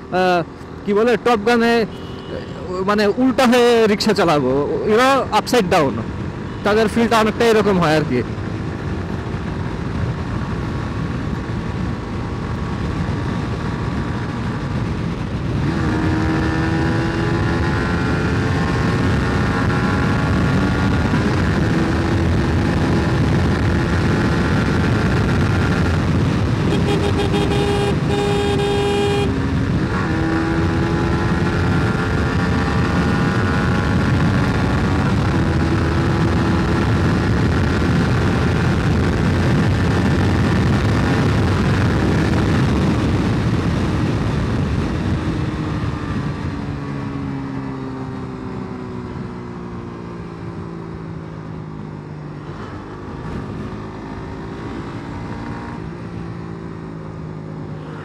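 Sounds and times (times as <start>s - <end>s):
motorcycle engine at speed: 0.0s - 58.0s
vehicle horn: 1.9s - 2.6s, 26.6s - 29.4s
wind rush: 8.2s - 58.0s.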